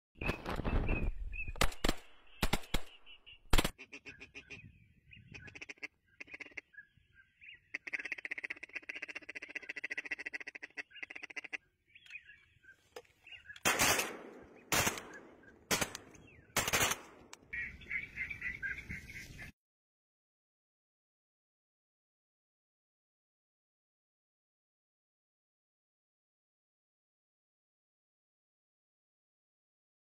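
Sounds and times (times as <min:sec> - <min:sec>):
shotgun blasts: 0:01.6 - 0:03.8, 0:13.6 - 0:17.3
ducks quacking: 0:03.6 - 0:06.8, 0:07.5 - 0:11.7, 0:17.5 - 0:19.5.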